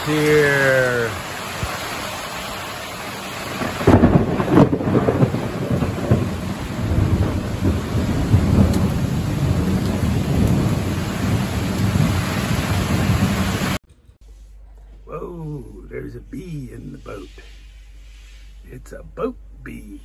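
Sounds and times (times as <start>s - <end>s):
heavy rain hiss: 0.0s - 13.8s, 15.1s - 20.0s
thunder rumbling: 0.0s - 13.8s.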